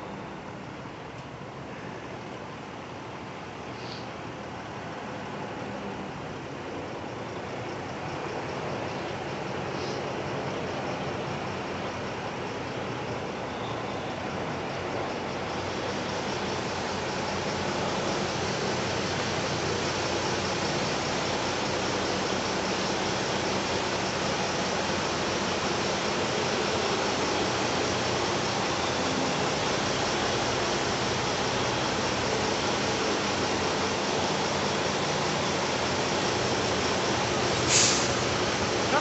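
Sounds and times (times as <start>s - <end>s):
truck diesel engine running: 5.9s - 39.0s
steady rushing noise: 14.3s - 39.0s.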